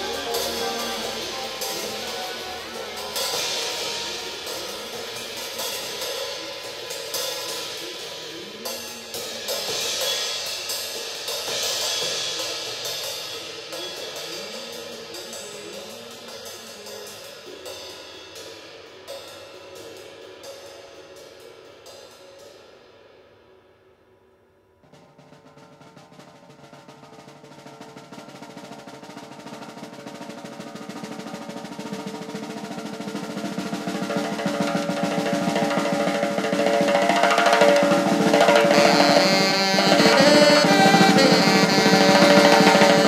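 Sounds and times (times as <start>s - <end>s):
electric guitar: 0.0s - 7.3s
cymbals and hi-hat: 0.0s - 43.0s.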